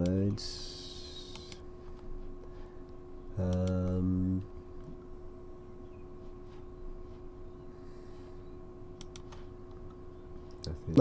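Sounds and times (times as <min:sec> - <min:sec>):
faint electrical hum: 0:00.0 - 0:11.0
man humming low note: 0:03.4 - 0:04.5.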